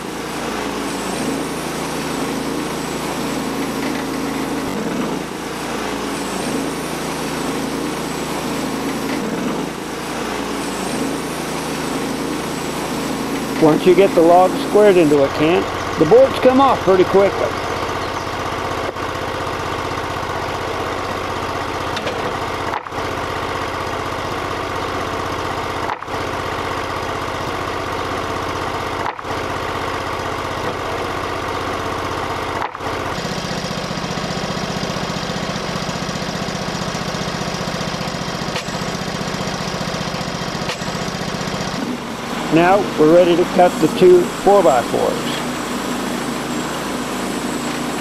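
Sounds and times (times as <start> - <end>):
gasoline engine running: 0.0 - 48.0.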